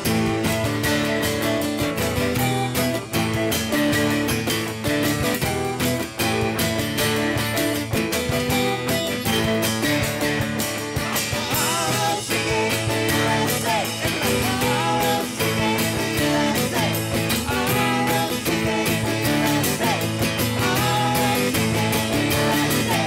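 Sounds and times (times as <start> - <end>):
rock band playing: 0.0 - 23.0
person singing: 11.0 - 23.0.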